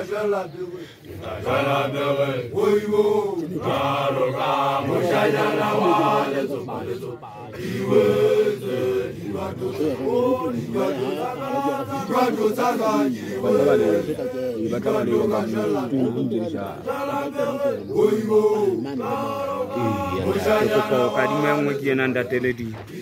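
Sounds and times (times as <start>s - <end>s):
group chanting in unison: 0.0s - 22.2s.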